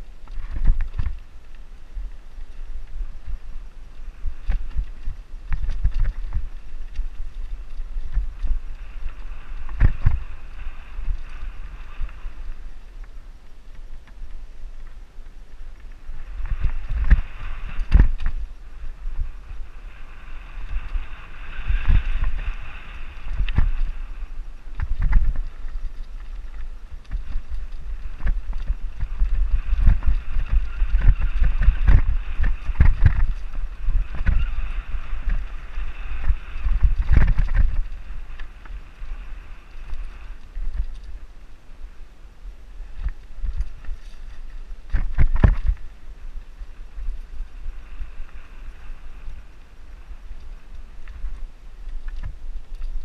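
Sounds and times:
bike tyres rolling over dirt: 0.0 - 53.0
wind on microphone: 0.0 - 53.0
bike knocking and rattling: 0.1 - 3.6, 4.2 - 14.4, 15.2 - 19.7, 20.5 - 38.8, 43.0 - 46.0.

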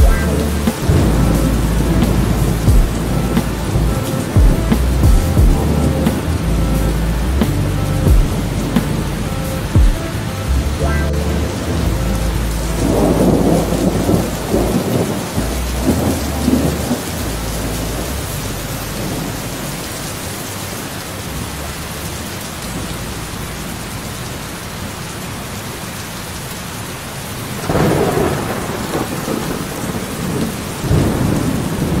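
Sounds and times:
thunder rumbling: 0.0 - 20.5, 27.6 - 32.0
rain hiss: 0.0 - 32.0.

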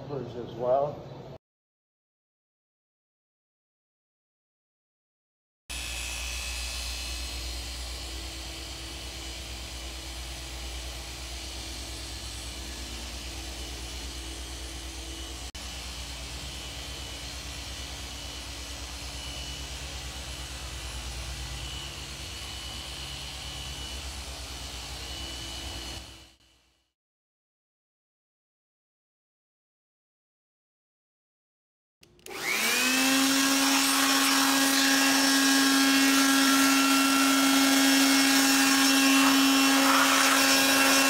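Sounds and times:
electric car polisher running: 5.7 - 26.4, 32.1 - 41.0.

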